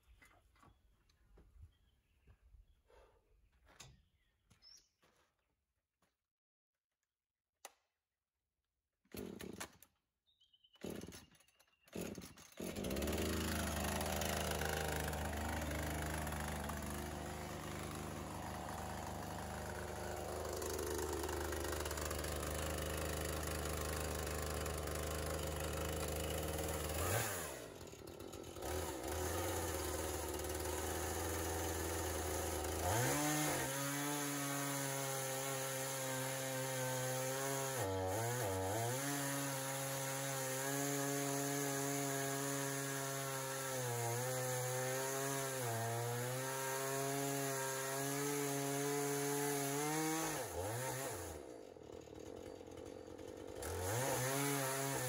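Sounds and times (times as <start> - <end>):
chainsaw cutting wood: 9.1 - 10.0, 10.7 - 55.0
chainsaw pull-starting: 9.1 - 10.0, 10.8 - 55.0
chainsaw idling: 12.0 - 55.0.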